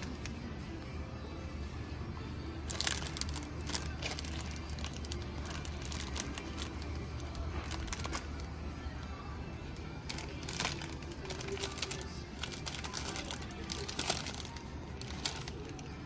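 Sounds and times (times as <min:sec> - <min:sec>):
plastic bags crinkling: 0:02.6 - 0:08.6, 0:10.0 - 0:16.0.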